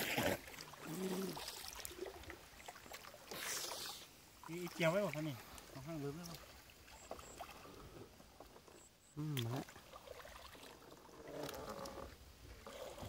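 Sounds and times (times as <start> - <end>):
fish splashing: 0.0 - 4.8, 9.5 - 13.0
water splashing and dripping: 0.0 - 7.7, 9.3 - 13.0
short wordless voice: 9.2 - 9.6.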